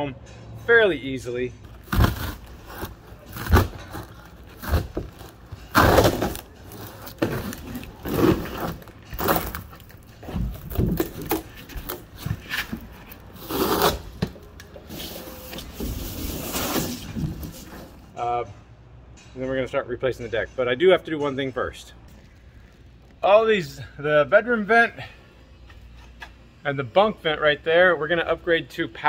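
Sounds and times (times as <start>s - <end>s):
plywood ripping and cracking: 1.7s - 14.0s.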